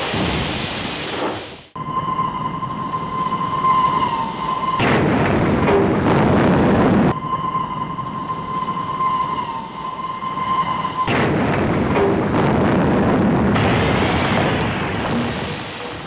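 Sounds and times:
train crash rumbling: 0.0 - 16.0
steady high tone: 1.8 - 12.5.

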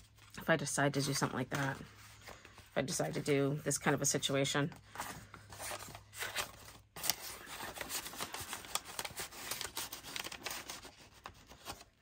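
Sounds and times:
paper rustling and crinkling: 4.8 - 12.0.

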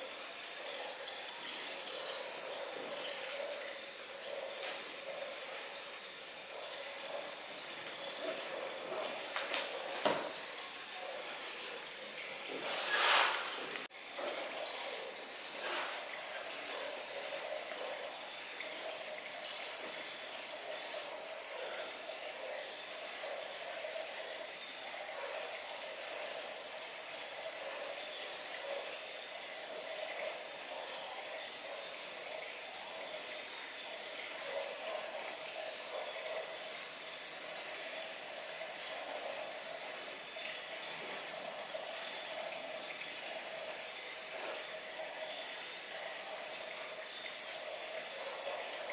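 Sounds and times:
water-like hiss: 10.7 - 17.0.

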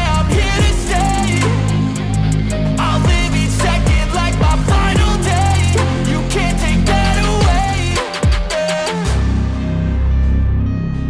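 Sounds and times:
pop music with deep bass: 0.0 - 10.9.

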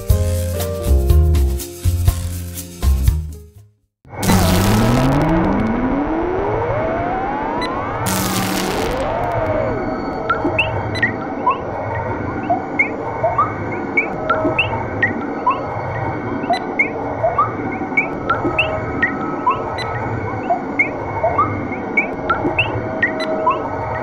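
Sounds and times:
steady hum with low throb: 4.2 - 11.0.

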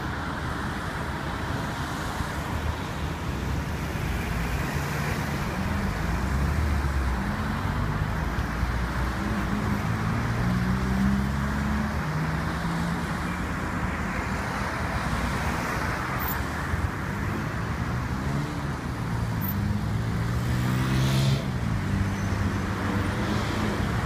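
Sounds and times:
cars driving past: 3.0 - 24.0.

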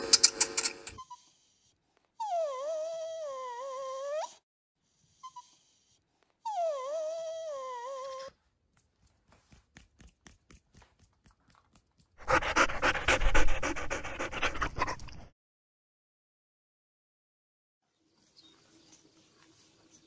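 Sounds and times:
small dog whining: 1.0 - 4.4, 5.1 - 8.4
rough dog sound: 11.2 - 15.3.

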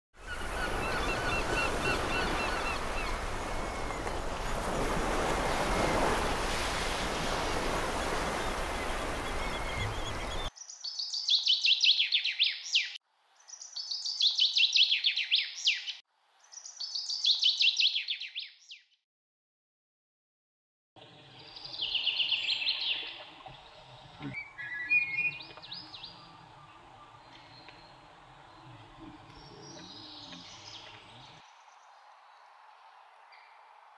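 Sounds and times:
bird chirps: 9.0 - 18.8, 24.2 - 31.4
bird calls rapid and high: 9.3 - 18.8.

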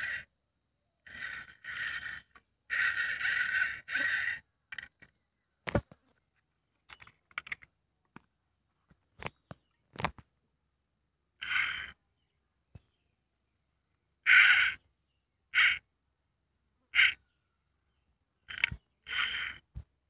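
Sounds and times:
crow cawing: 0.0 - 0.3, 1.0 - 4.9, 11.4 - 12.0, 14.2 - 14.8, 15.5 - 15.8, 16.9 - 17.2, 18.5 - 19.6.

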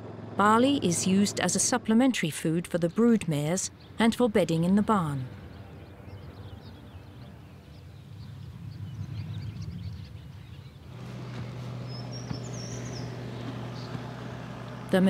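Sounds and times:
tractor engine humming: 0.0 - 9.3, 10.6 - 15.0
small birds chirping: 2.7 - 15.0
bird trilling: 11.9 - 14.1.

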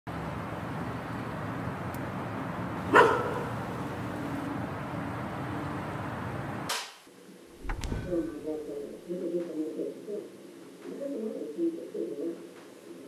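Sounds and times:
outdoor ambience hiss: 0.1 - 13.0
dog barking: 2.8 - 3.7.

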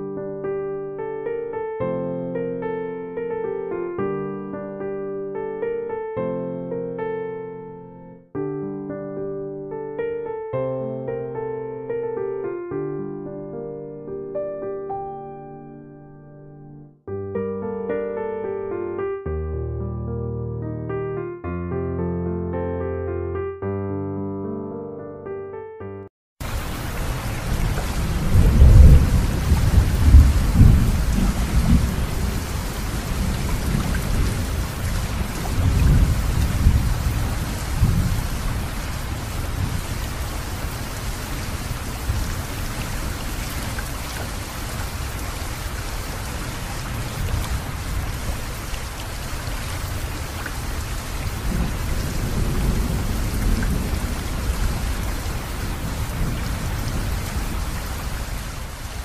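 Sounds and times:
steady rain: 26.4 - 59.0
low thunder rolling: 27.0 - 40.9, 50.6 - 58.2.

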